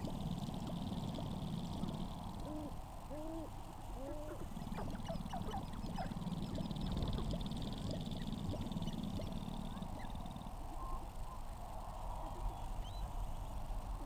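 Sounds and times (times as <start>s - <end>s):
grouse clucks and cackles: 0.0s - 11.1s
grouse cooing: 0.0s - 11.1s
low background noise: 0.0s - 14.0s.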